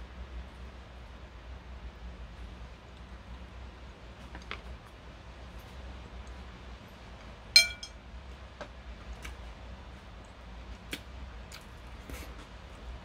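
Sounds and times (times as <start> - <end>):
chopsticks clinking on porcelain: 7.6 - 8.0.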